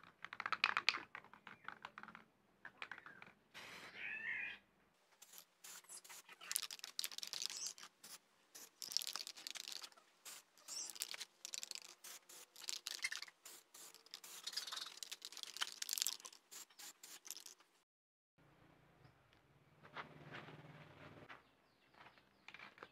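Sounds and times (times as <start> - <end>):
spray can hissing bursts: 5.2 - 17.6.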